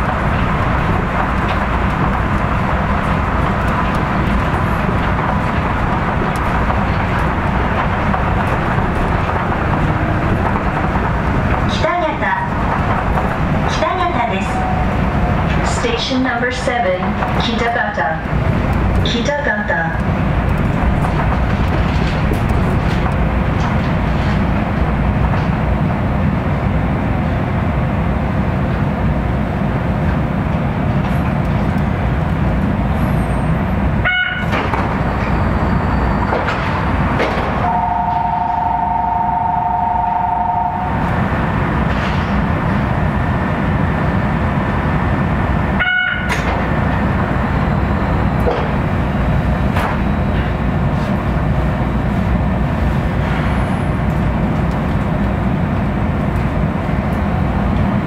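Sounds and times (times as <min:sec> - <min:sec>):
monorail train running rumble: 0:00.0 - 0:58.0
two-tone horn: 0:37.6 - 0:40.9.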